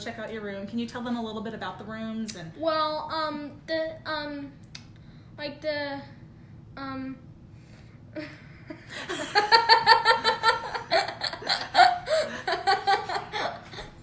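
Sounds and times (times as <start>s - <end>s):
boy laughing: 8.2s - 14.0s
woman laughing: 8.2s - 14.0s.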